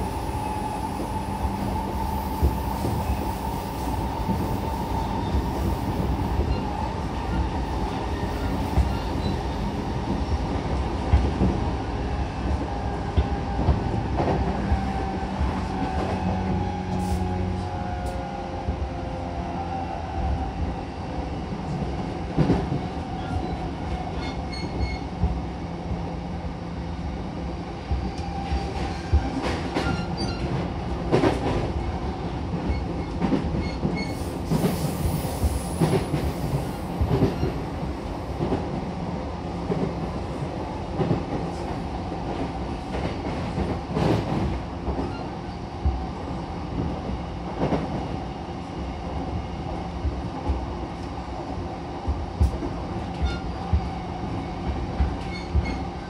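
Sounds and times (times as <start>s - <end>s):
train wheels rumbling: 27.4s - 56.0s.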